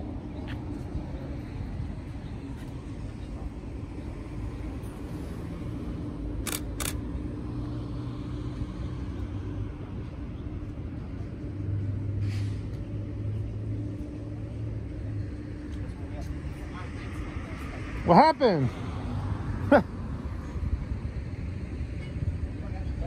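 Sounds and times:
sharp clicks: 6.4s - 7.0s.

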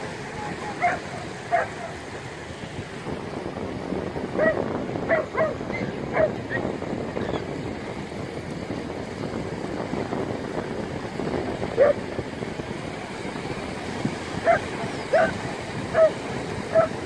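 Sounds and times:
water: 0.0s - 17.0s
wind: 0.0s - 17.0s
dog barking: 0.8s - 2.0s, 4.4s - 6.4s, 11.8s - 12.0s, 14.4s - 17.0s.

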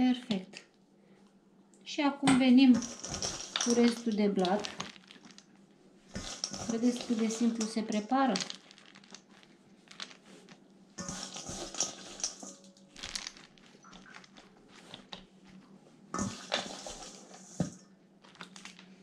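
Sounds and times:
rustling: 2.7s - 19.0s
dishes and utensils clinking: 11.0s - 12.8s.

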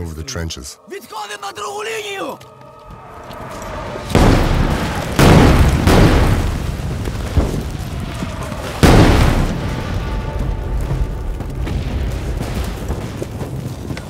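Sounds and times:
artillery shells exploding: 4.1s - 11.0s.

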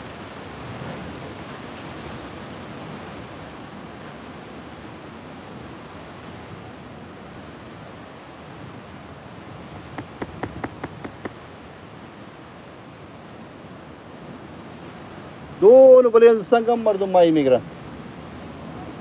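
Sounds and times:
wind on microphone: 0.0s - 11.9s
sea surf washing against rocks: 0.0s - 19.0s
sharp clicks or taps: 9.9s - 11.4s.

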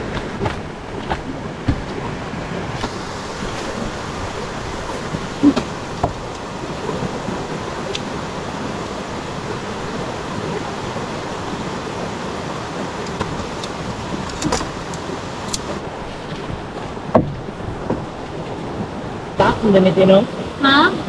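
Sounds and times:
river rushing: 0.0s - 21.0s
tent pole clicks: 13.0s - 15.8s.

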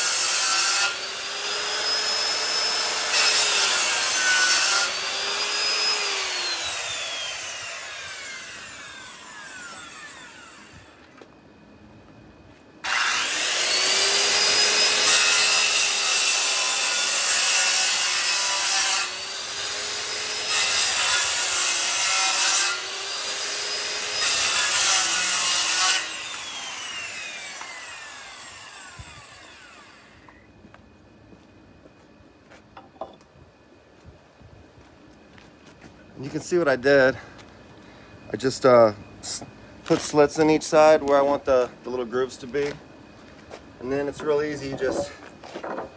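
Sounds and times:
power saw cutting wood: 0.0s - 11.1s, 12.8s - 30.4s.

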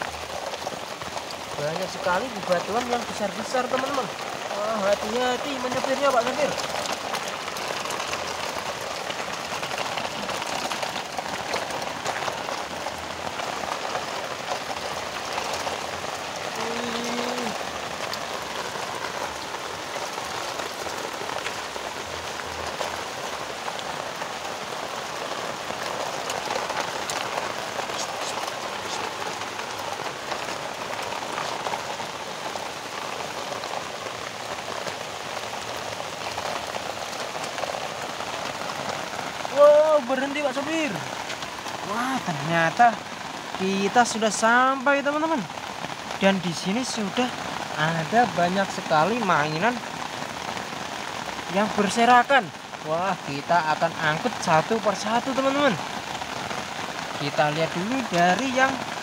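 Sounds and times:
rain falling on gravel: 0.0s - 59.0s.

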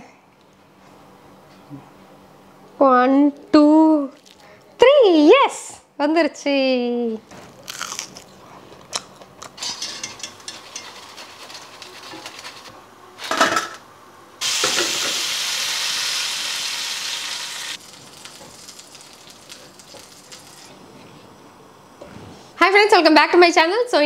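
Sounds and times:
food frying in hot oil: 14.4s - 20.7s
loud steady sizzle: 14.4s - 20.9s.

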